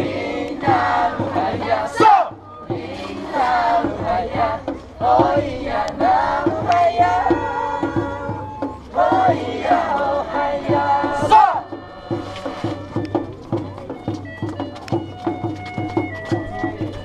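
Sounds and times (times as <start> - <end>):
group chanting and singing: 0.0 - 13.3
steady drum beat: 0.0 - 17.0.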